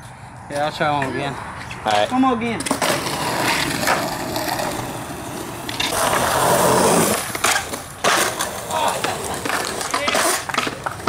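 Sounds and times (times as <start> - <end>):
skateboard wheels rolling on concrete: 0.0 - 11.0
skateboard clacks: 1.9 - 11.0
skateboard grinding on concrete ledge: 2.6 - 11.0.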